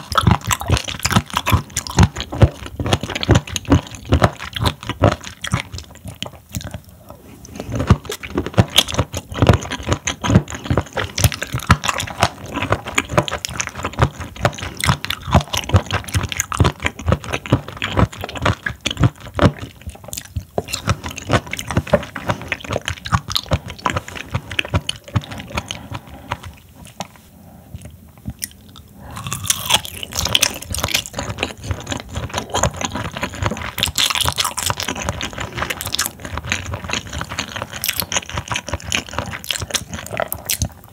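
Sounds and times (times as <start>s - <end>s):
chewing with mouth clicks: 0.0s - 40.9s.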